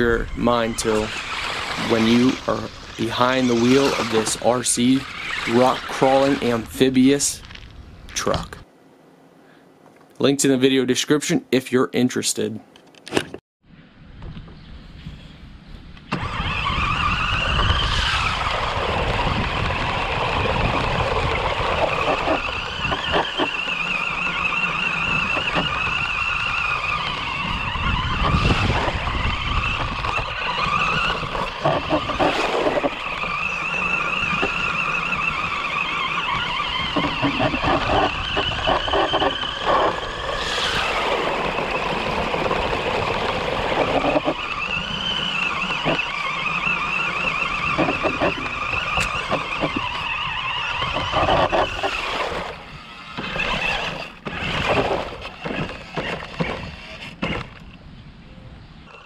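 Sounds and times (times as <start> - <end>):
electric motors whining: 0.0 - 7.8, 16.0 - 57.8
wheels rumbling over rough ground: 0.0 - 8.7, 16.0 - 57.9.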